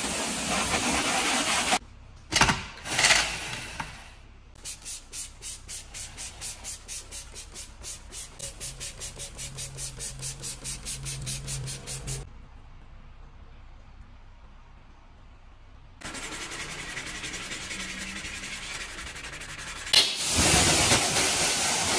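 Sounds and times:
spray bottle spraying: 4.6 - 12.3.

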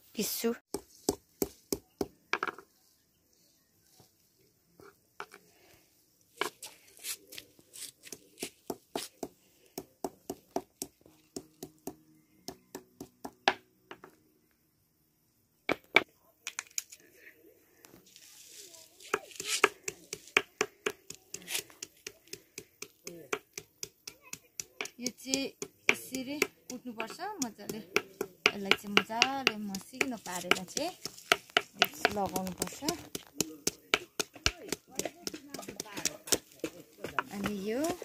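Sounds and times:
stone pounding on rock: 24.8 - 38.0.

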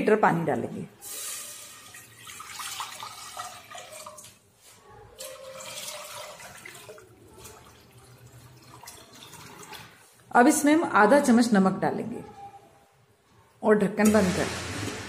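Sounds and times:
water pouring into a pot: 1.0 - 4.4, 5.1 - 10.2.

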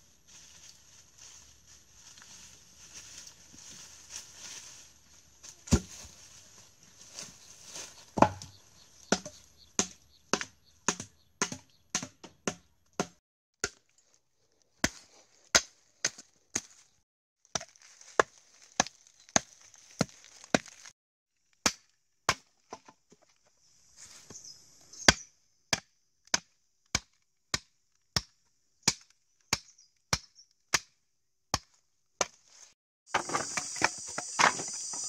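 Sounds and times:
machete chopping wood: 5.7 - 5.9, 8.2 - 8.5, 9.1 - 13.8, 14.8 - 16.7, 21.6 - 22.6, 25.1 - 32.4.

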